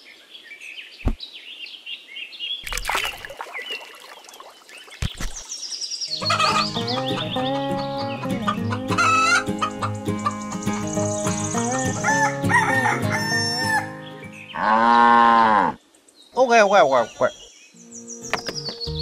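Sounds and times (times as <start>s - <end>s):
light background music: 6.2s - 14.4s
rooster crowing: 12.0s - 14.0s.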